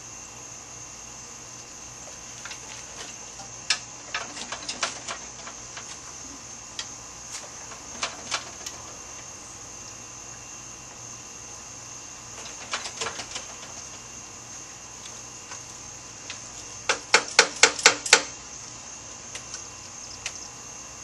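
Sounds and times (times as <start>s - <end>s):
steady high hiss: 0.0s - 21.0s
hand tools clicking on metal: 16.3s - 18.3s.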